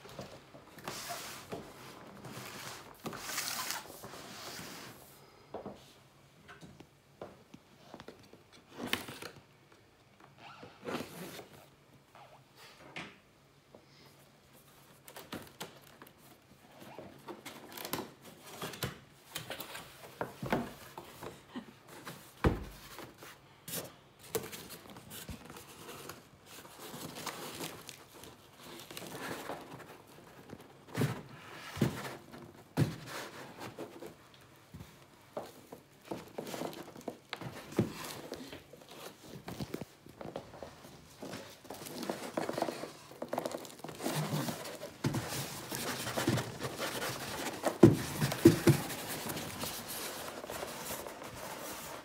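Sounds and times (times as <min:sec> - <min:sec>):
packaging rustling and scraping: 0:00.1 - 0:05.0, 0:22.0 - 0:34.3, 0:35.4 - 0:52.0.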